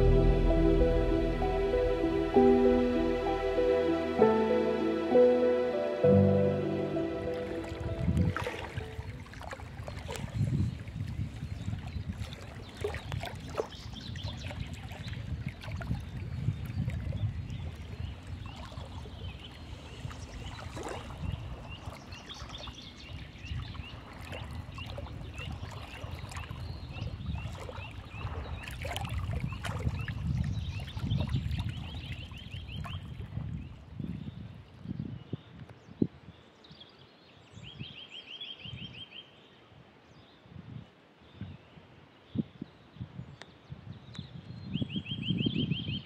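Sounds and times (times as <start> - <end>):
low rumble: 0.0 - 8.4
river water lapping: 0.0 - 33.4.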